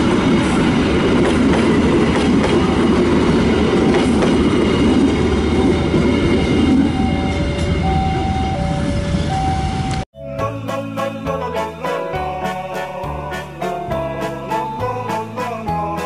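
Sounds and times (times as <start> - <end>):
train rolling past: 0.0 - 16.0
level crossing warning chime: 6.7 - 10.0
music: 10.2 - 16.0.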